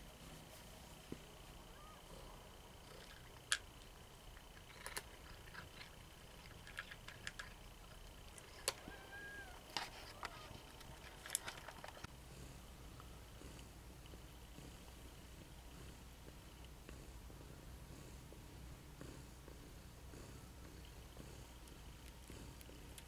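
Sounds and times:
faint high whine: 0:00.0 - 0:23.0
cat crunching dry kibble: 0:02.8 - 0:08.8, 0:09.7 - 0:12.1.

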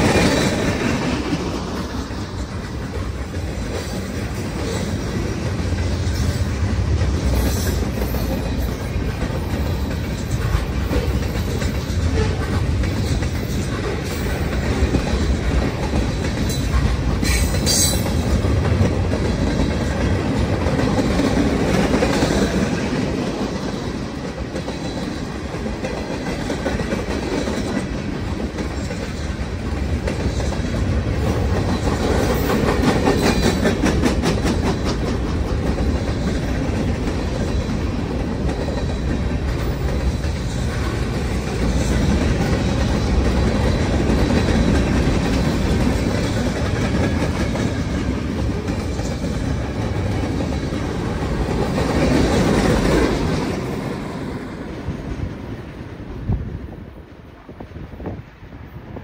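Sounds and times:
wheels clacking over rail joints: 0:00.0 - 0:55.5
steel wheels rumbling on rail: 0:00.0 - 0:59.0.

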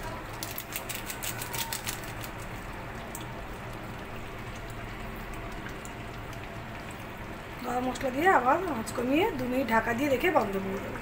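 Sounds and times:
curry bubbling in a pan: 0:02.2 - 0:11.0.

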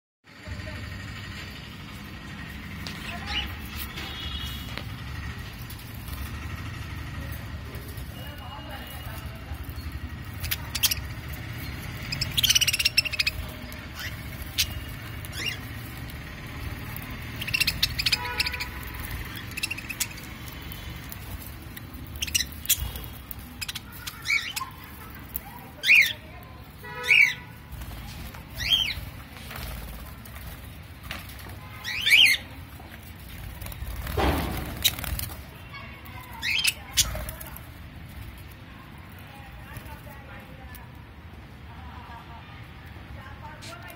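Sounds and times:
budgerigars chirping and squawking: 0:02.9 - 0:04.8, 0:09.0 - 0:30.5, 0:31.8 - 0:32.6, 0:36.1 - 0:37.6.

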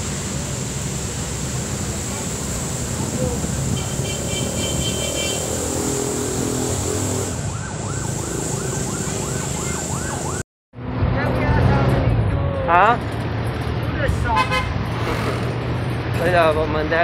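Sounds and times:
background traffic: 0:00.0 - 0:17.0
siren yelping: 0:03.4 - 0:10.4.

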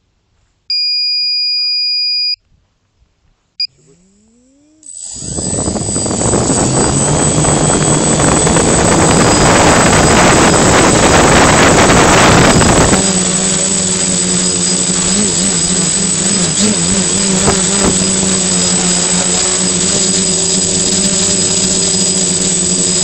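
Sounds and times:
electric motors whining hum: 0:03.6 - 0:23.0
propeller wash rush: 0:05.0 - 0:23.0.

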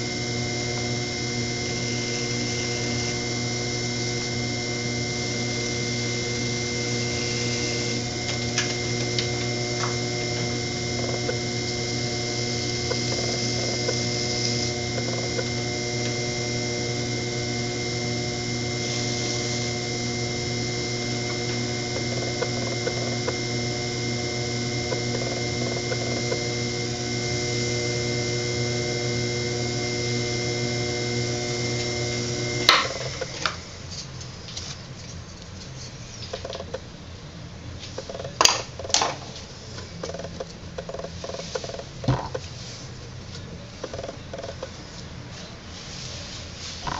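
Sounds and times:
potter's wheel motor humming: 0:00.0 - 0:34.7, 0:39.8 - 0:42.5.

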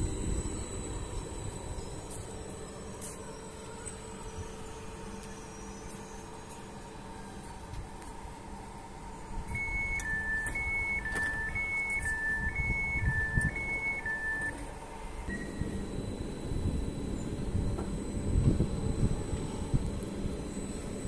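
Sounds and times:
low rumble of train equipment: 0:00.0 - 0:21.0
two-tone door warning beep: 0:09.4 - 0:21.0.

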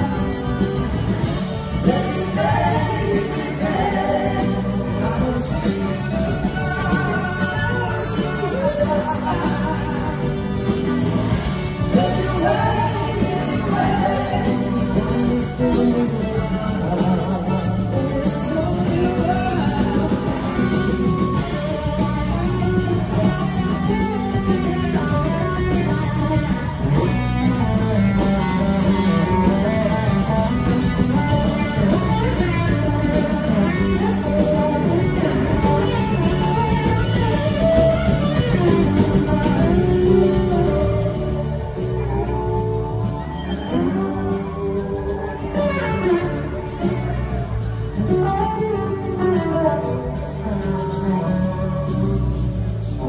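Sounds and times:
electric guitars: 0:00.0 - 0:53.0
live rock band playing: 0:00.0 - 0:53.0.

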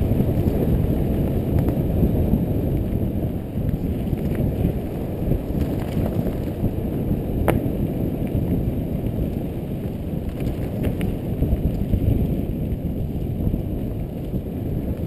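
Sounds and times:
bike clicks and rattles: 0:00.0 - 0:15.0
bike tyres rumbling on dirt: 0:00.0 - 0:15.0
wind buffeting microphone: 0:00.0 - 0:15.0.

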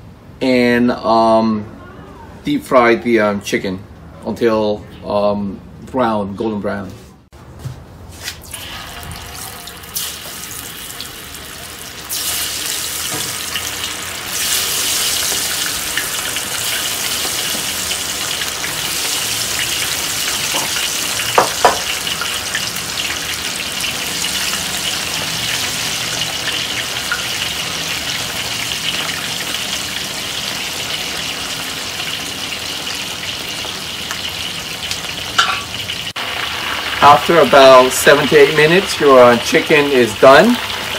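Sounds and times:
oil sizzling in a wok: 0:08.4 - 0:40.9.

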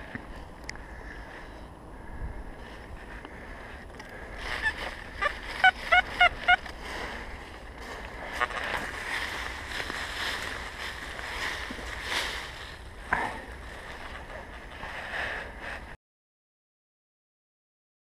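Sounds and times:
leaf litter rustling while digging: 0:04.4 - 0:15.1.

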